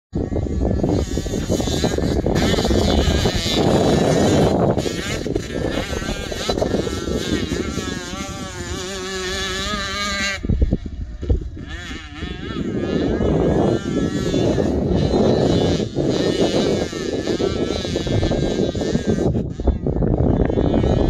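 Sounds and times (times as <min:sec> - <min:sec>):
distant dirt bike engine revving: 0:00.1 - 0:21.0.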